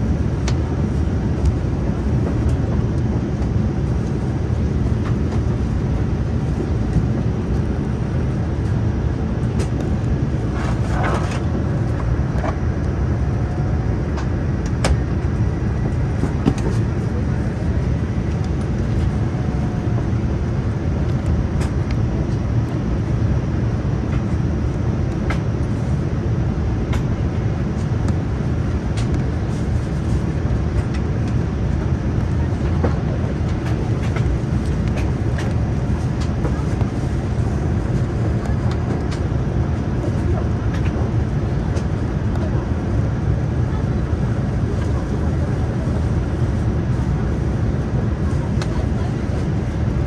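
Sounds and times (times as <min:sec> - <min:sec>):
airliner cabin airflow and engine: 0:00.0 - 0:50.0.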